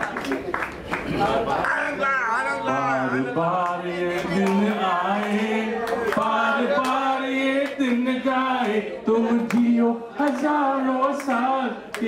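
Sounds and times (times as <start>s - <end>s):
man singing: 2.5s - 12.0s
voices singing held notes: 2.6s - 12.0s.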